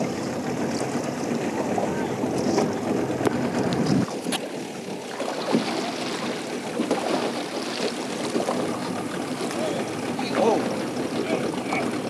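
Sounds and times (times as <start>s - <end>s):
water lapping against kayak hull: 0.0s - 12.0s
wind on microphone: 1.3s - 4.4s.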